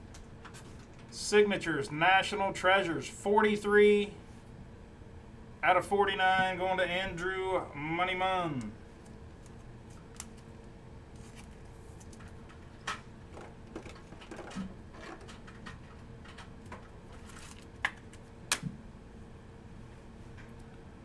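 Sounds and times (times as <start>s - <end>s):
faint steady hum: 0.0s - 21.0s
cards rustling: 11.1s - 12.4s, 17.1s - 18.2s.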